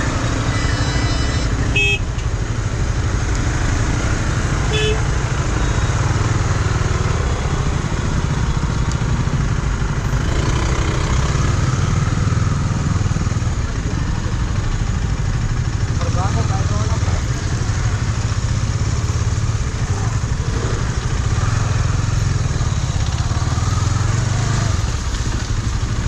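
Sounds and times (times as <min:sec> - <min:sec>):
motorcycle engine running: 0:00.0 - 0:26.0
vehicle horns tooting: 0:00.3 - 0:02.3, 0:04.6 - 0:05.2.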